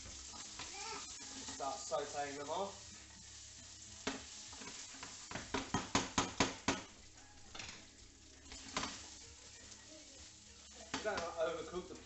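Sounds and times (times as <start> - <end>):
prawns sizzling in a frying pan: 0.0 - 12.0
wooden spoon knocking a pan: 4.0 - 7.8.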